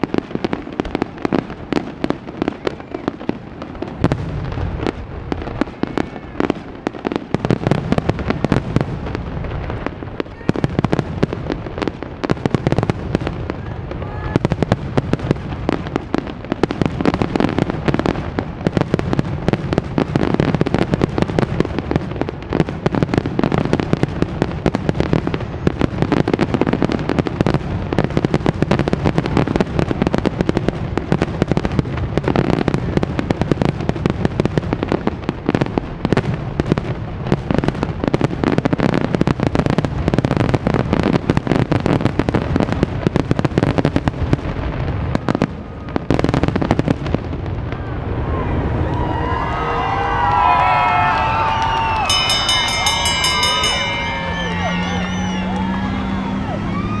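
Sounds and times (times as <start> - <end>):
fireworks shells bursting: 51.6 - 55.8.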